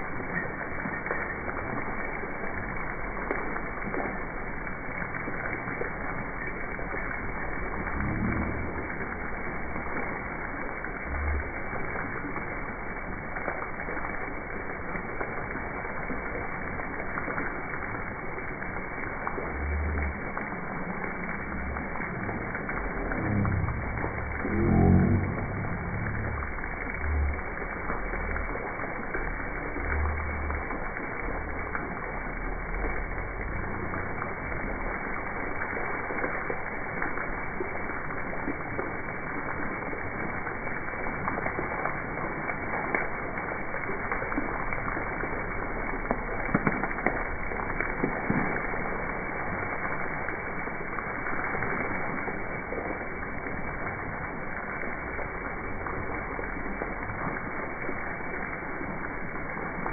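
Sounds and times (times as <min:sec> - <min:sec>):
fountain water splashing: 0:00.0 - 0:59.9.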